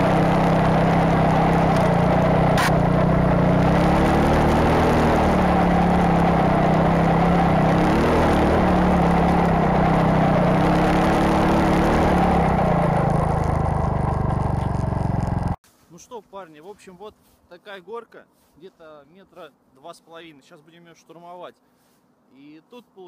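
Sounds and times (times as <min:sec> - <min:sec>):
motorcycle engine working hard: 0:00.0 - 0:15.6
track churning through snow: 0:00.0 - 0:15.6.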